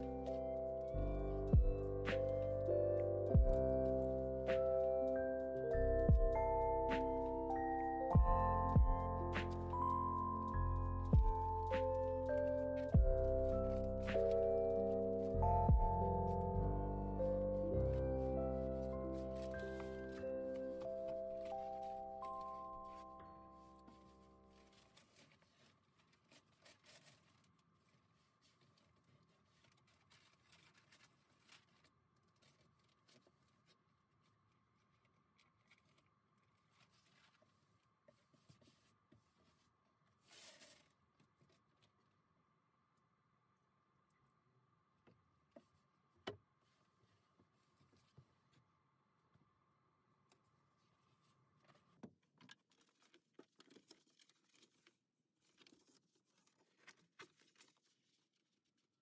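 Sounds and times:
vinyl sheet rustling and crinkling: 0:08.3 - 0:41.8, 0:51.0 - 0:59.0
sheet rustling: 0:18.0 - 0:33.8.

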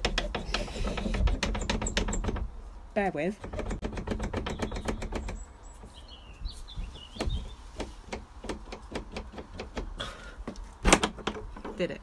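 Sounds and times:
door latch and frame rattling: 0:00.8 - 0:02.5, 0:03.4 - 0:05.5, 0:10.8 - 0:11.9
bird chirping: 0:04.4 - 0:07.8.

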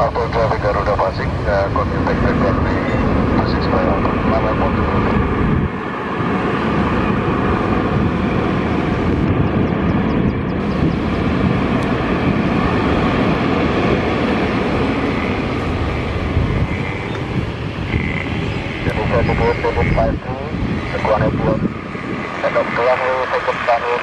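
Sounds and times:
jet engines rumbling: 0:00.0 - 0:24.0
faint steady whine: 0:13.0 - 0:24.0.

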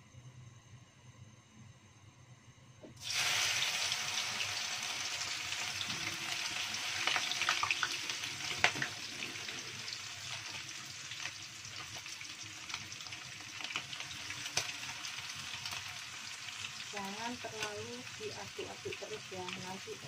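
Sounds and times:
fish sizzling in hot oil: 0:03.0 - 0:20.0
oil popping and crackling: 0:05.5 - 0:14.9.

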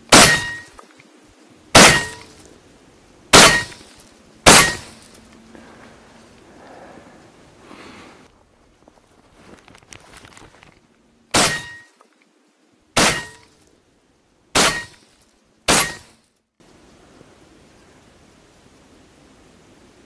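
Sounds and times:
shotgun shots: 0:00.0 - 0:00.8, 0:01.7 - 0:02.3, 0:03.3 - 0:05.0, 0:11.3 - 0:11.8, 0:13.0 - 0:13.4, 0:14.6 - 0:15.0, 0:15.7 - 0:16.1.

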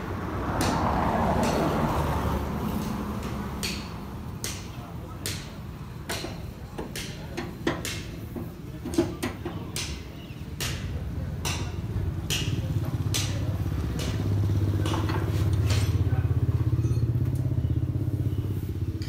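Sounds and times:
sharp knocks and clicks: 0:02.8 - 0:16.0
vehicle engine running: 0:11.9 - 0:19.0.

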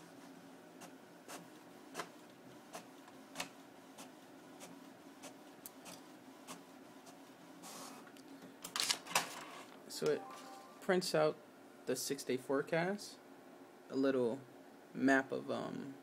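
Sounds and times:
inkjet printer printing: 0:00.0 - 0:08.0.

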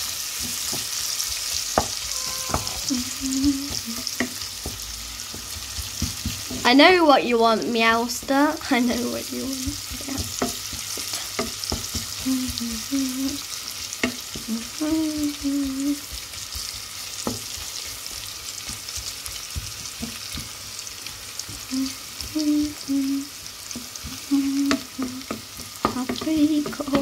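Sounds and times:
bacon and onion sizzling: 0:00.0 - 0:27.0.

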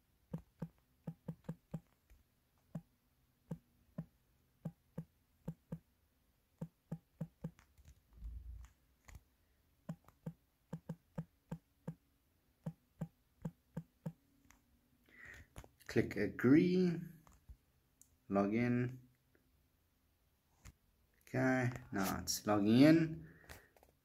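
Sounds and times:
fingertip taps on touchscreen: 0:00.3 - 0:02.9, 0:03.5 - 0:05.9, 0:06.6 - 0:08.0, 0:09.8 - 0:12.0, 0:12.6 - 0:14.6.

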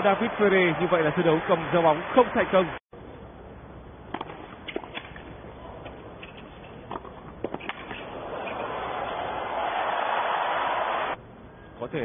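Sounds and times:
tennis ball hit by racquets: 0:04.1 - 0:09.2
crowd cheering and applauding: 0:08.2 - 0:11.2.

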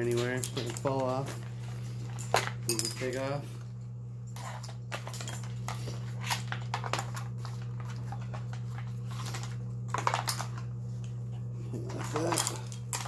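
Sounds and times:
steady low hum: 0:00.0 - 0:13.0
metal carabiners clinking: 0:02.2 - 0:03.4.

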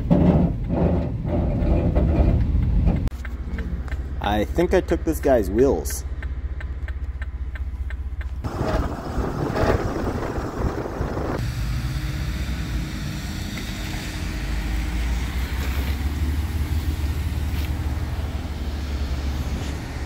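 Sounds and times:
low engine rumble: 0:00.0 - 0:20.0
loud rushing noise: 0:08.5 - 0:14.9.

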